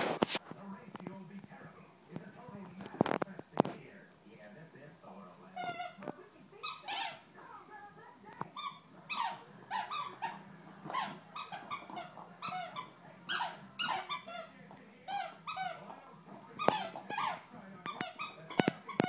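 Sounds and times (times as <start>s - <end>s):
squeaky rubber toy: 5.5s - 6.0s, 6.6s - 7.3s, 8.5s - 16.0s, 16.6s - 19.0s.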